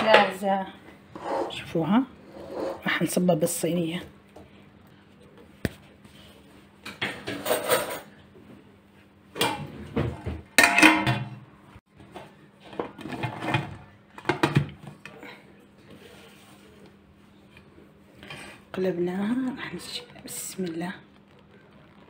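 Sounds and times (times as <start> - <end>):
metal pot and tray clattering: 9.4 - 11.4.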